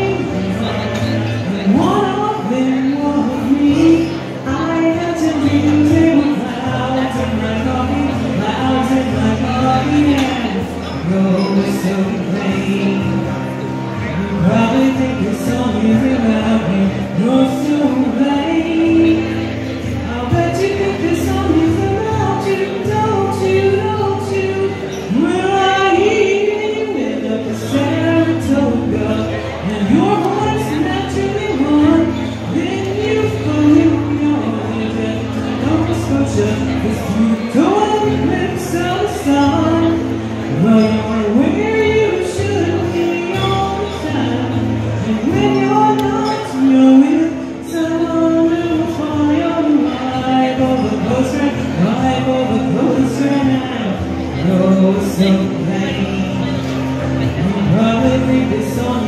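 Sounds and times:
acoustic guitar: 0:00.0 - 0:59.0.

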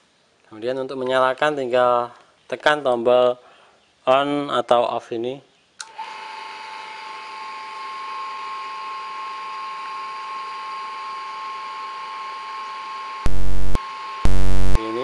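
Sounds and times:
electric grater motor whining: 0:05.8 - 0:15.0
loud buzz: 0:10.0 - 0:15.0.

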